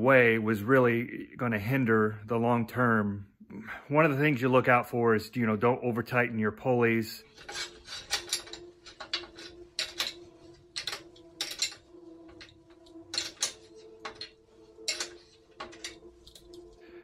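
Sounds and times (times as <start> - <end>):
metal clinks and clicks: 7.3 - 16.7.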